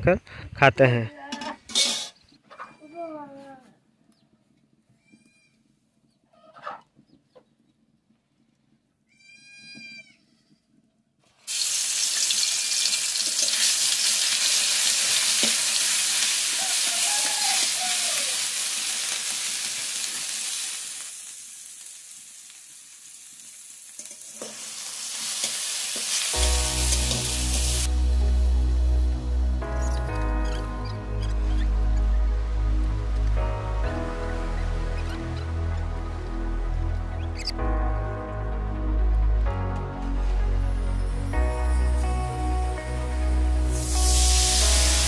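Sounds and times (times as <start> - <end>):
hot oil sizzling: 11.4 - 36.0, 43.3 - 45.0
music: 26.3 - 45.0.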